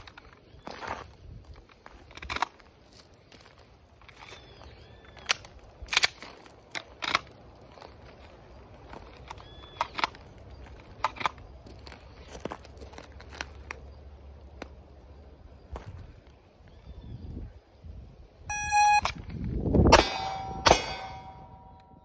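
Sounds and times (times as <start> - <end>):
clicks and rattles of gear: 0.0 - 0.4, 1.5 - 2.8, 5.2 - 13.8
footsteps crunching on gravel: 0.0 - 14.7, 15.6 - 16.4.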